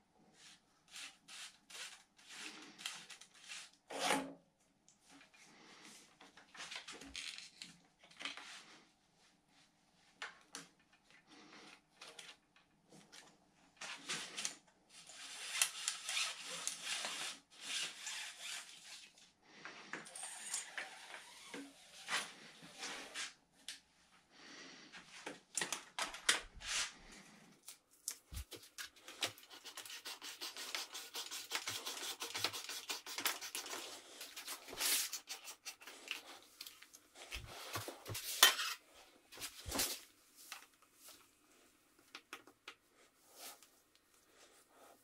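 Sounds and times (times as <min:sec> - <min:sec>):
cable sliding and scraping: 0:13.8 - 0:23.4.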